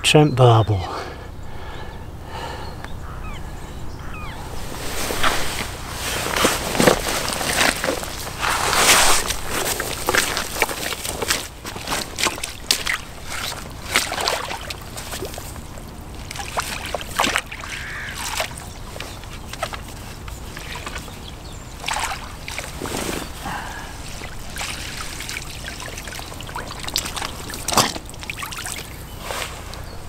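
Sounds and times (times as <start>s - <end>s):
river water splashing: 4.3s - 30.0s.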